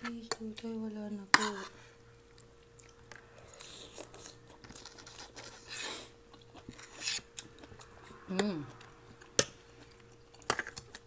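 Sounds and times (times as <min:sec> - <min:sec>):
chewing and wet mouth noises: 0:02.0 - 0:11.0
slurping soup: 0:03.4 - 0:09.0.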